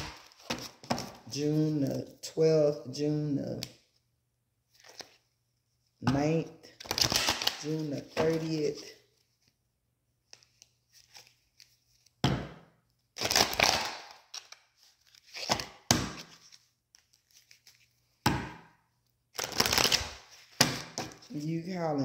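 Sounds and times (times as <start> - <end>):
cards shuffling swishes: 6.8 - 8.9.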